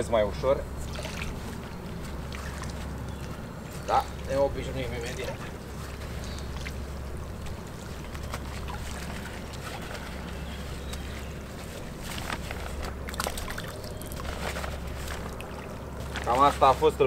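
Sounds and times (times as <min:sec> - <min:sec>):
water splashing and draining: 0:00.8 - 0:03.0, 0:07.7 - 0:10.9, 0:13.0 - 0:16.3
short splashes: 0:00.8 - 0:04.3, 0:07.6 - 0:11.4, 0:12.0 - 0:16.7.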